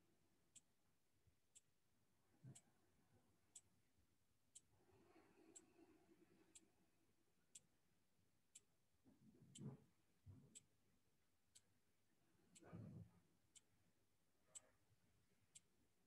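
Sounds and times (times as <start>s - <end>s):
clock ticking faintly: 0.0s - 3.9s, 4.5s - 4.7s, 6.5s - 7.8s, 8.5s - 10.9s, 11.5s - 15.9s.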